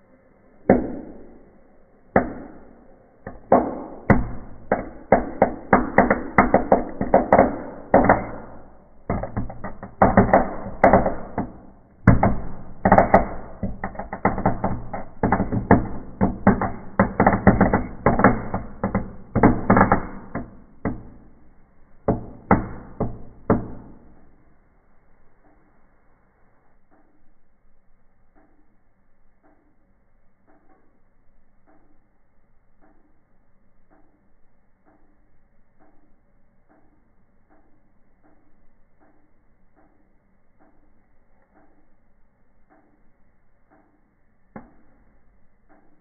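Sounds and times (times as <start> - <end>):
wood fire crackling and popping: 3.2 - 21.5.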